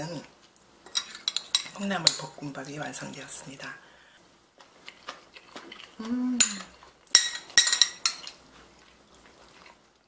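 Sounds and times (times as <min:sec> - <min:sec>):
person humming mm: 0:06.0 - 0:06.7
metal spoon clinking on dish: 0:06.4 - 0:08.4.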